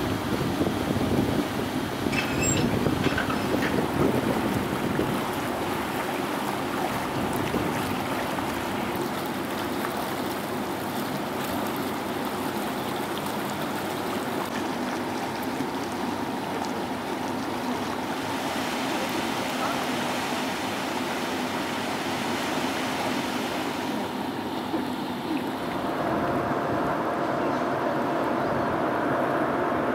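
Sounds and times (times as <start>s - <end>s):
water rushing along ship hull: 0.0s - 29.9s.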